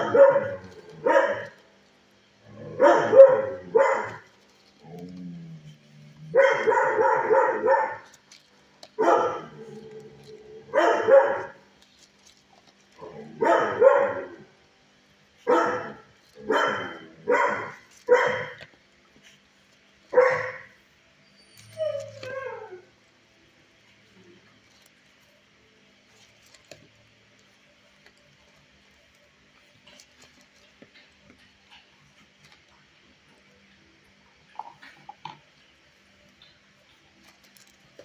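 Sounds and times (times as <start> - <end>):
dog barking: 0.0 - 1.6, 2.7 - 4.3, 6.3 - 8.2, 9.0 - 9.7, 10.7 - 11.6, 13.4 - 14.5, 15.4 - 18.6, 20.1 - 20.8
dog whining: 21.2 - 22.9.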